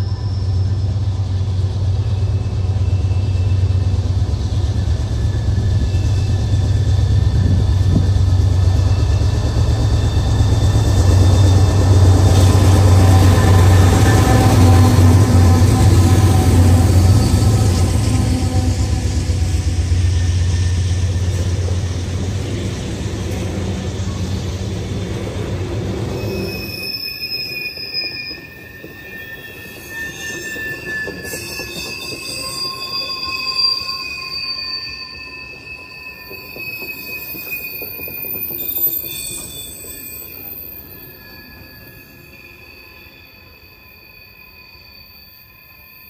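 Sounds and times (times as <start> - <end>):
diesel locomotive rumble: 0.0 - 26.5
train wheels rumbling on rails: 0.0 - 44.2
high wheel squeal: 0.0 - 46.0.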